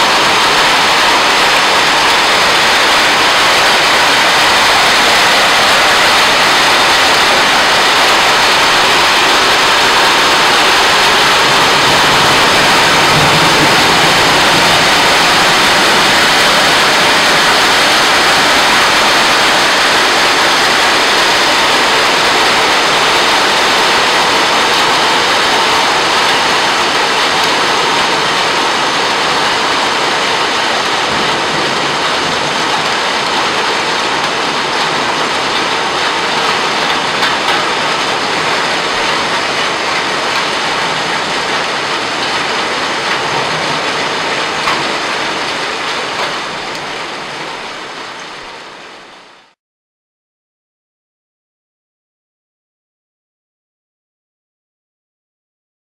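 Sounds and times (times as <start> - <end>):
heavy rain and hail pelting: 0.0 - 49.6.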